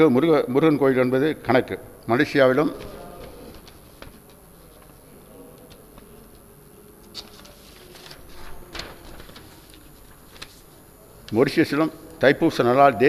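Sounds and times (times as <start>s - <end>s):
faint sound system hum: 0.0s - 13.0s
paper rustling and crackling: 2.6s - 10.8s.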